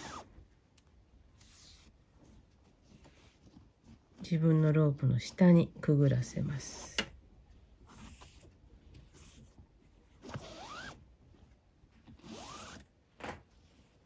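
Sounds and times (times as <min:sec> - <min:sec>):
cord rasping through a knot: 0:07.4 - 0:14.0.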